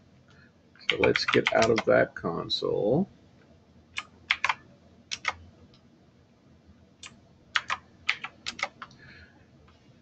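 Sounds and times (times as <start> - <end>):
keyboard key clicks: 0.9 - 1.9, 4.0 - 5.4, 7.0 - 9.0.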